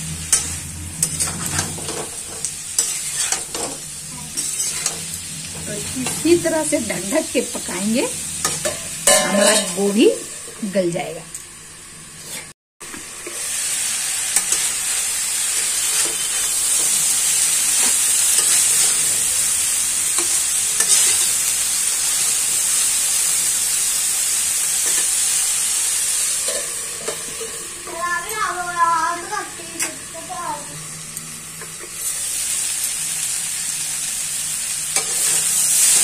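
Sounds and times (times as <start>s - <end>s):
vegetables sizzling in oil: 0.0s - 36.0s
spatula scraping and tapping: 2.8s - 3.8s.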